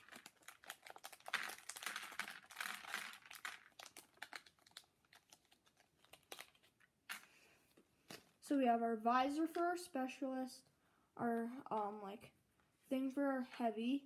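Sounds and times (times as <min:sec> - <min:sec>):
plastic bag crinkling: 0:00.0 - 0:07.3.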